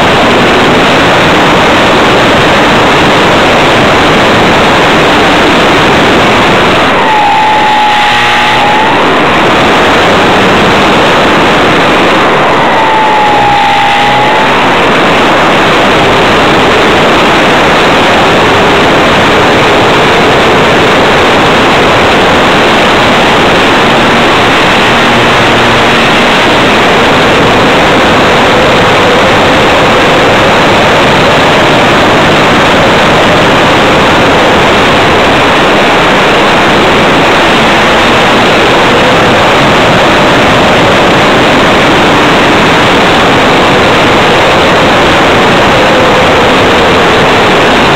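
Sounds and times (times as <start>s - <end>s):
faint model plane motor tone: 5.4s - 16.3s, 21.3s - 33.3s.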